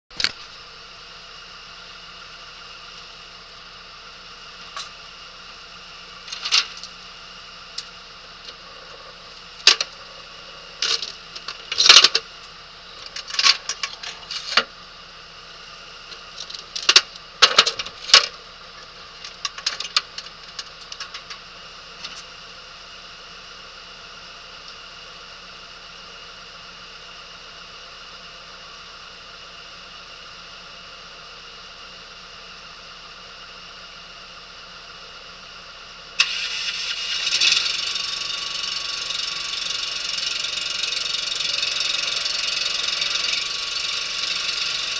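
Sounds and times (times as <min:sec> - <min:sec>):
small metallic jingles: 0:06.3 - 0:07.1.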